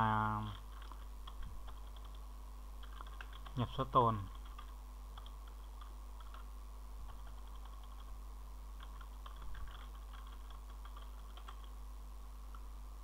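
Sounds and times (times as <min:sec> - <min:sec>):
low steady hum: 0:00.0 - 0:13.0
keyboard typing: 0:00.4 - 0:02.2, 0:02.8 - 0:03.6, 0:04.3 - 0:08.1, 0:08.8 - 0:11.8.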